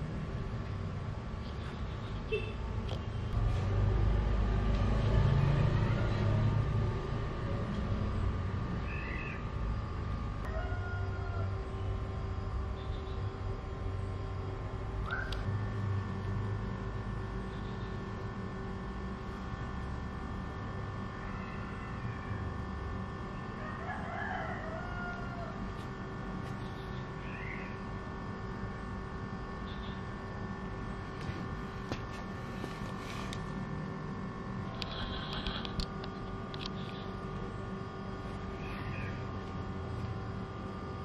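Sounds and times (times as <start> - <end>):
steady background hum: 0.0 - 41.0
distant bird calls: 8.8 - 9.5, 17.3 - 18.2, 26.5 - 28.0, 38.5 - 39.4.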